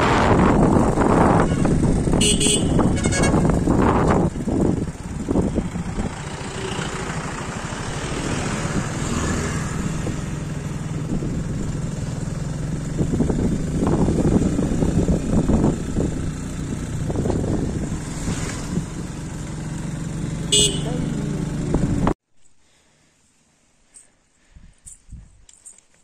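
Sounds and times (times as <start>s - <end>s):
wind rumbling on microphone: 0.0s - 6.5s, 7.5s - 19.2s, 24.5s - 25.5s
motorbike engine running: 0.1s - 22.2s.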